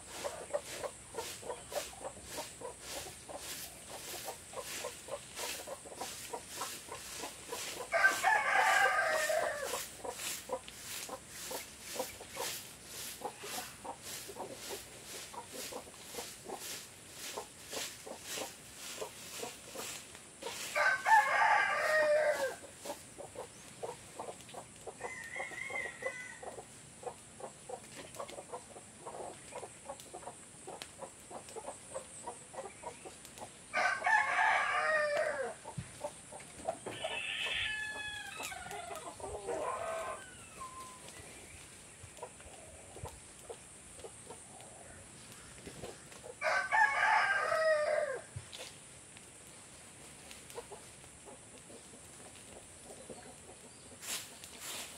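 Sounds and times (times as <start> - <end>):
chicken calls: 0.0 - 48.4, 50.2 - 54.9
rooster crowing: 7.1 - 9.9, 20.5 - 22.6, 25.0 - 26.6, 33.7 - 35.6, 36.9 - 41.0, 46.4 - 48.3.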